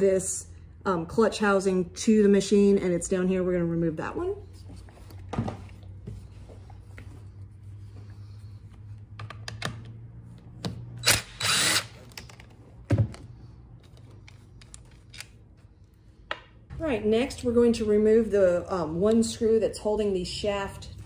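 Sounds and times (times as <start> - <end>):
cordless driver motor running: 11.0 - 12.2.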